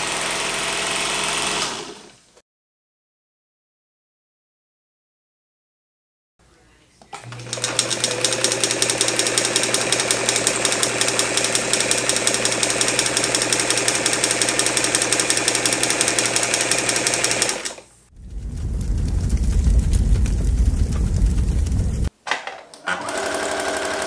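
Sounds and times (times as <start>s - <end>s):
sewing machine clattering: 7.2s - 17.8s
motor hum: 17.2s - 22.1s.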